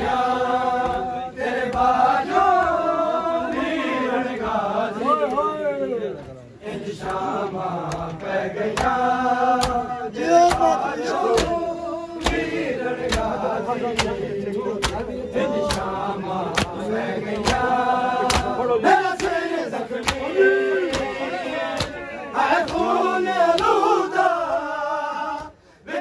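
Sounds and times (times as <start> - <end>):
men singing a lament: 0.0 - 5.5, 6.6 - 26.0
hands slapping chests: 7.8 - 11.6, 12.2 - 14.2, 14.8 - 18.6, 19.2 - 19.4, 20.0 - 22.0, 22.6 - 22.9, 23.5 - 23.8.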